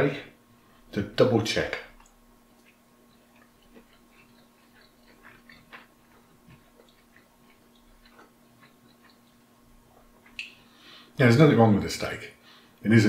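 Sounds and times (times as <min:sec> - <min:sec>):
low steady hum: 0:00.0 - 0:13.0
person chewing: 0:02.0 - 0:10.8.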